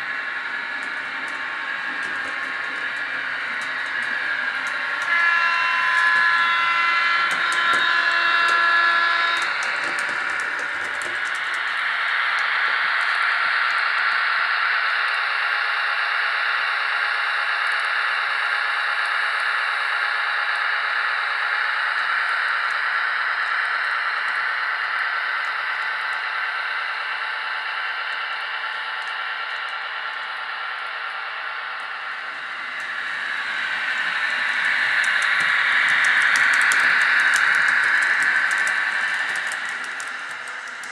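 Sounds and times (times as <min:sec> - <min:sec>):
model locomotive motor whining: 0:00.0 - 0:40.9
wheels clicking over track: 0:07.3 - 0:11.7, 0:32.9 - 0:40.9.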